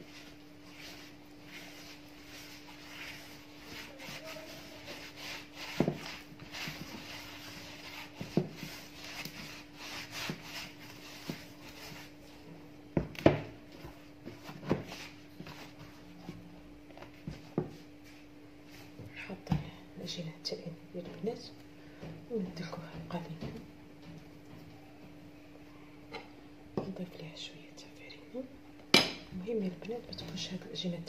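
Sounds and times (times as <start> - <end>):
dough squishing in plastic bowl: 0.0 - 19.6.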